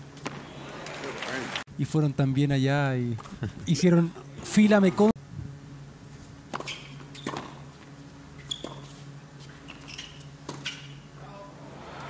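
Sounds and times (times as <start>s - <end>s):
low steady arena hum: 0.0s - 12.0s
shoes squeaking on court: 6.5s - 11.2s.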